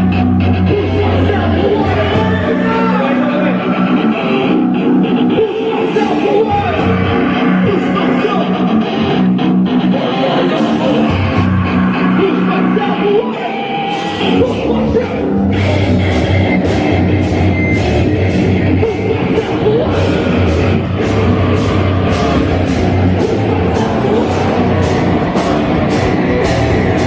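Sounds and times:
bass guitar: 0.0 - 27.0
distorted electric guitars: 0.0 - 27.0
person yelling vocals: 0.7 - 3.9, 10.3 - 15.4, 23.2 - 25.8
drums beating: 14.1 - 27.0.

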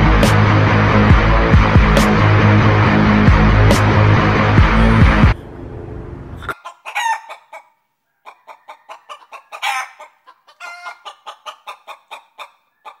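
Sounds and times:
chicken clucking: 6.4 - 13.0
chicken squawks: 6.4 - 13.0.

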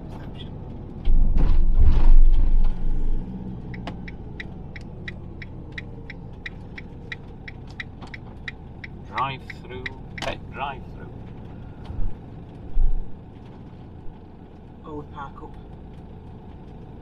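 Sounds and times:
engine and road noise: 0.0 - 17.0
turn indicator ticking: 3.2 - 13.3
loud low rumble: 10.0 - 14.2.

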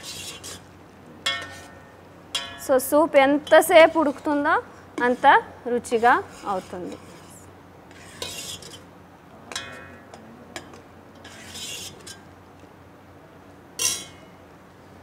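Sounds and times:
metal ladle scraping a pot: 0.0 - 0.7, 1.3 - 2.6, 3.4 - 8.9, 10.6 - 12.3, 13.8 - 14.2
ladle clinking against pot: 1.3 - 2.7, 9.5 - 12.2, 13.8 - 14.3.

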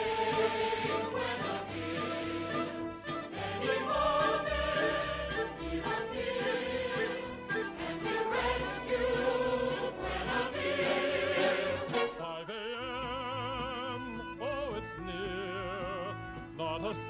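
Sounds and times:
choir singing: 0.0 - 12.8
orchestra playing: 0.0 - 17.0.

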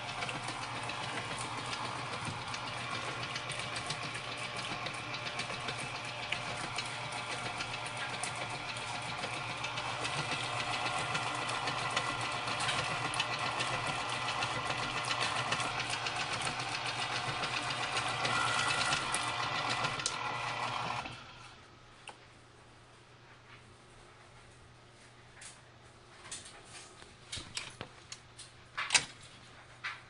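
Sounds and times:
beater clicking in bowl: 0.0 - 20.8
stand mixer motor whirring: 0.0 - 21.6.

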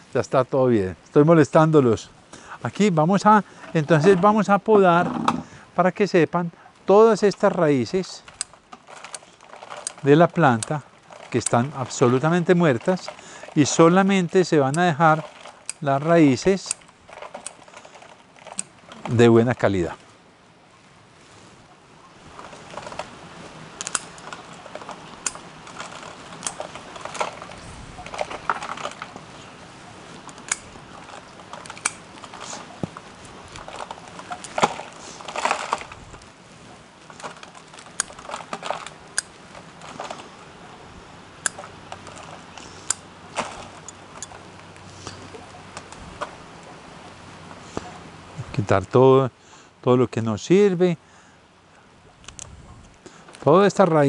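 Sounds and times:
roots snapping and crackling: 6.8 - 20.0, 22.3 - 29.6, 30.2 - 40.6, 41.3 - 46.6.

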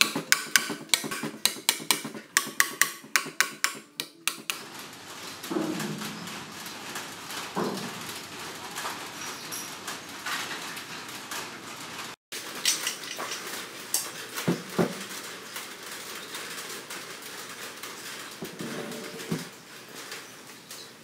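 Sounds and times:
metal clinking and clattering: 12.4 - 15.2.

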